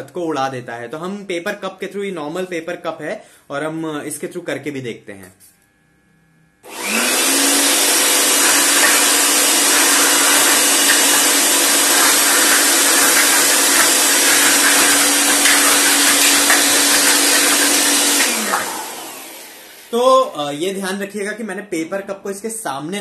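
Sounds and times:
electric air blower motor whining: 6.6s - 20.5s.

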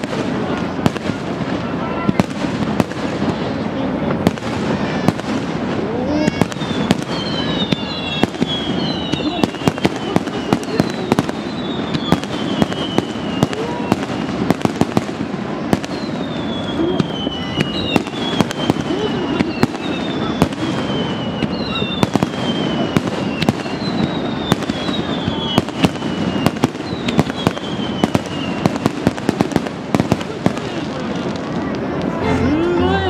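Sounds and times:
firework bangs and pops: 0.0s - 32.2s
crowd chatter: 0.0s - 33.0s
falling firework whistles: 6.2s - 31.6s.

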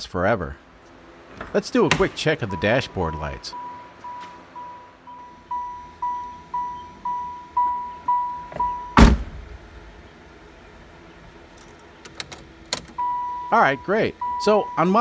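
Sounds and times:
car warning chime pinging: 1.9s - 9.0s, 12.9s - 15.0s
car door thudding shut: 8.5s - 9.6s.

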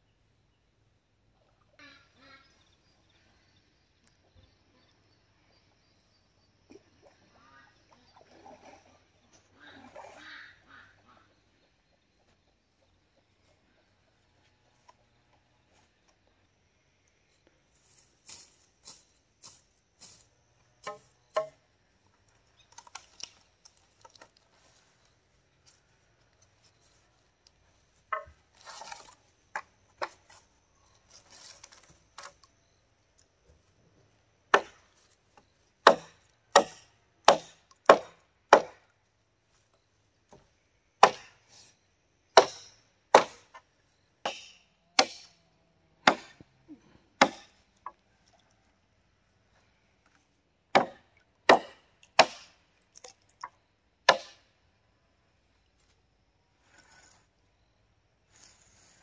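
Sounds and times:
machete chopping wood: 20.8s - 21.6s, 34.5s - 34.8s, 35.8s - 38.8s, 41.0s - 41.4s, 42.4s - 43.6s, 44.2s - 45.4s, 46.0s - 46.4s, 47.2s - 47.6s, 50.7s - 52.6s, 54.0s - 54.4s.

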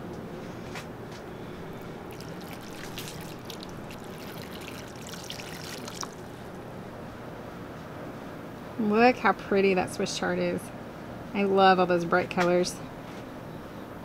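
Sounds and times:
water pouring from watering can: 1.8s - 6.6s.

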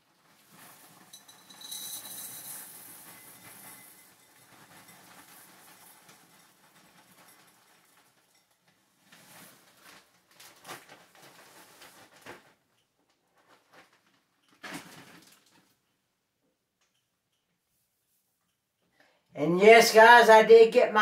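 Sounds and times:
plastic bag rustling and crinkling: 0.0s - 15.8s.

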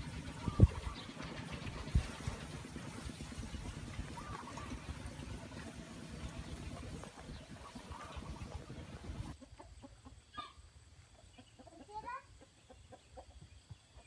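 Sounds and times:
chickens clucking: 0.0s - 14.0s
chicken short high calls: 10.3s - 10.6s.

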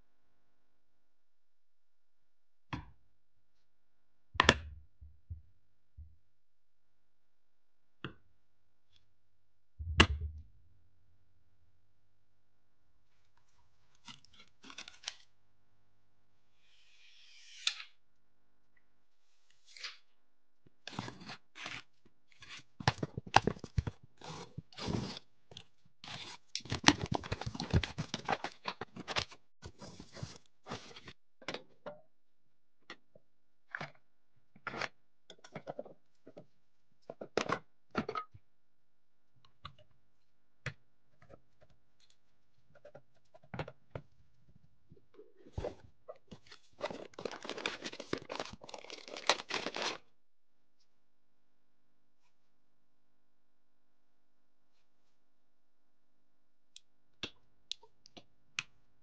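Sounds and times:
packaging rustling: 46.4s - 50.0s.

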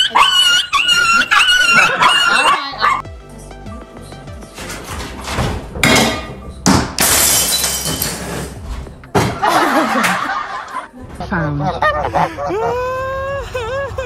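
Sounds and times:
glass ornament shattering: 7.0s - 8.3s
glass pieces scattering and tinkling: 7.0s - 8.3s.

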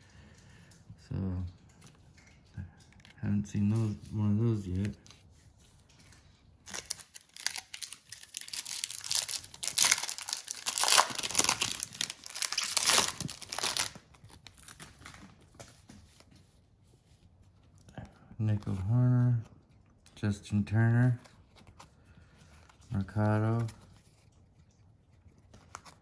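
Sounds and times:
card pack wrapper tearing and crinkling: 6.1s - 15.6s.

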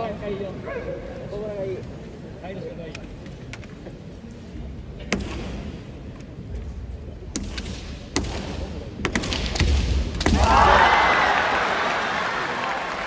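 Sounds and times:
bamboo swords cracking: 7.3s - 10.6s.

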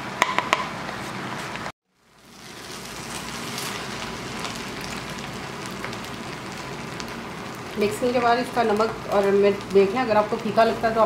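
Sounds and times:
food sizzling in a pan: 1.9s - 11.0s.

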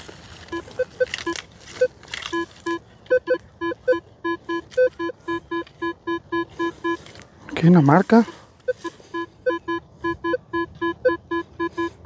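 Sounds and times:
metal detector beeps: 0.5s - 7.0s, 8.2s - 12.0s.

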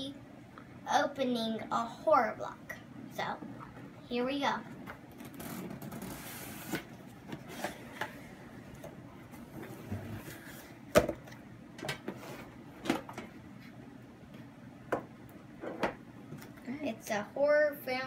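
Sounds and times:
cardboard scraping: 5.3s - 7.8s.

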